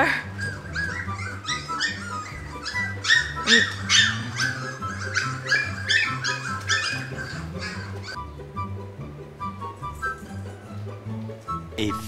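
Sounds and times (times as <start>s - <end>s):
puppies whining and squealing: 0.1s - 8.2s.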